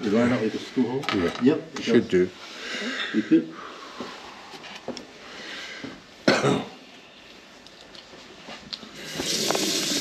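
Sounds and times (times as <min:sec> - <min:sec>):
person coughing: 0:06.2 - 0:06.8.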